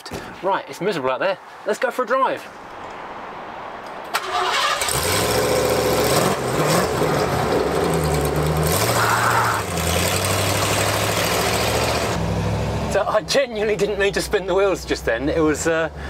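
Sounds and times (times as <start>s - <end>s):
engine cranking and starting: 4.1s - 9.0s.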